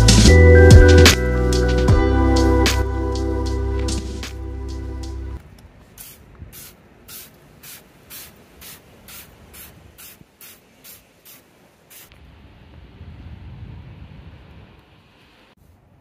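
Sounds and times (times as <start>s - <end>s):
spray bottle squirting: 5.9s - 12.2s.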